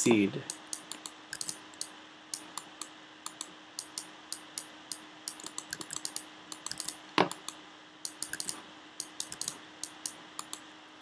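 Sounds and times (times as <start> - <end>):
keyboard and mouse clicking: 0.5 - 4.7, 5.3 - 10.6.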